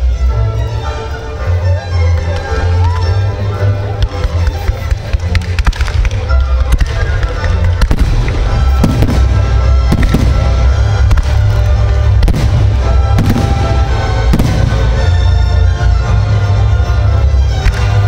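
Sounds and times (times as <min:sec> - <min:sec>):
music: 0:00.0 - 0:18.0
fireworks crackling: 0:03.9 - 0:15.8
fireworks bursts and bangs: 0:04.0 - 0:15.4.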